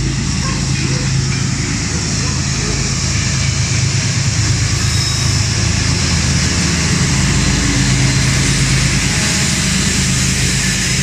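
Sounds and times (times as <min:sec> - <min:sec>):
locomotive engines droning: 0:00.0 - 0:11.0
wheels hissing on rail: 0:00.0 - 0:11.0.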